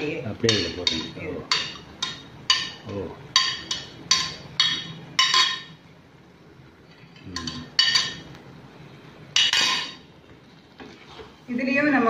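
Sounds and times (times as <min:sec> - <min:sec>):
spoon clinking against plate: 0:03.4 - 0:05.8, 0:07.4 - 0:08.3.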